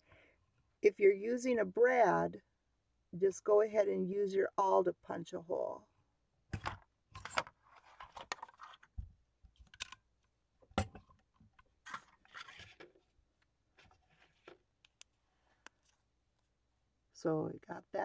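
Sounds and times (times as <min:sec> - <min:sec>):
card and paper rustling: 0:06.6 - 0:09.8, 0:11.8 - 0:13.1, 0:13.8 - 0:14.6.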